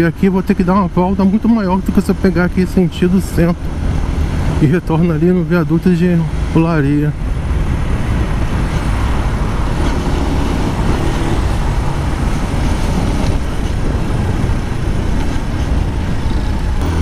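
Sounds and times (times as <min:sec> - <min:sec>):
wind noise on microphone: 0:07.2 - 0:17.0
motorcycle engine running: 0:16.7 - 0:17.0.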